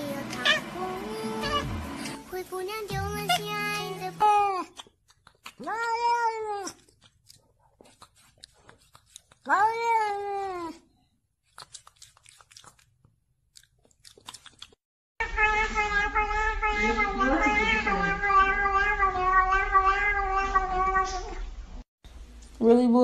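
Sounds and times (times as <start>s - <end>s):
cat meowing: 0.4s - 0.6s, 5.6s - 6.8s, 15.2s - 21.5s.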